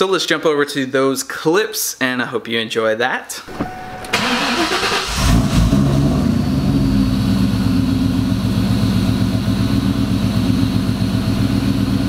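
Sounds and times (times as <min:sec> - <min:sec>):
car engine starting and idling: 0:03.4 - 0:12.0.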